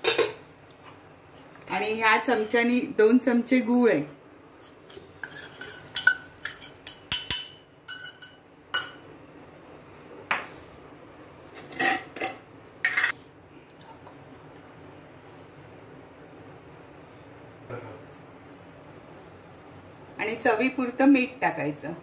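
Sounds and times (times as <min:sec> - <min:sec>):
spoon clinking against steel bowl: 0:04.9 - 0:09.0.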